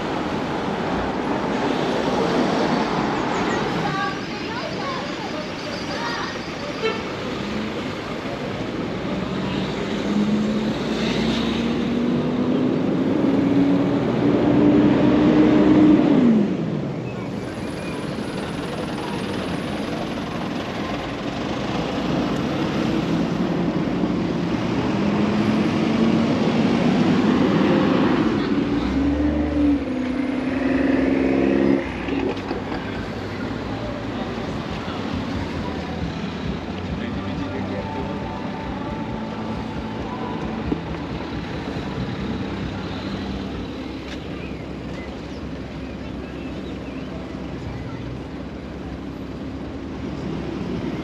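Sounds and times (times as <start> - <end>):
tyres hissing on road: 0.0 - 12.6
vehicle engines accelerating: 0.0 - 51.0.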